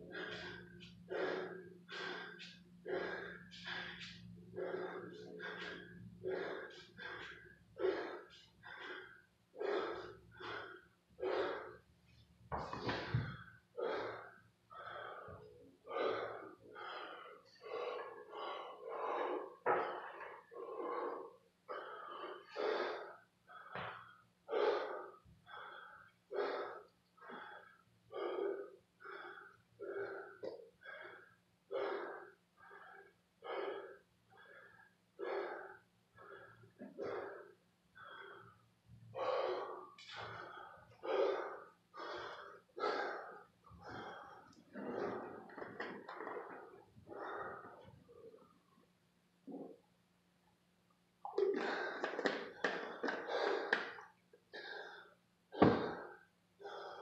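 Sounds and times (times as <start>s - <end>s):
steady low hum: 0.0s - 31.2s
man breathing hard: 0.0s - 48.5s, 51.4s - 57.0s.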